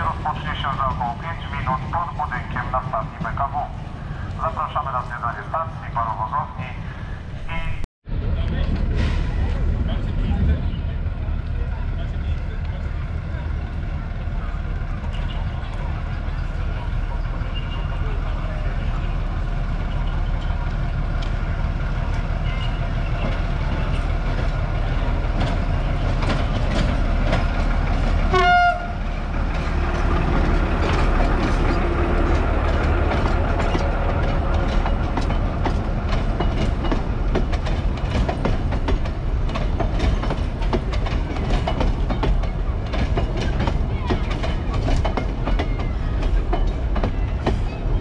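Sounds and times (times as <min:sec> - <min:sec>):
diesel locomotive engine drone: 0:00.0 - 0:48.0
wheels clicking over rail joints: 0:22.0 - 0:48.0
train horn toot: 0:28.3 - 0:29.1.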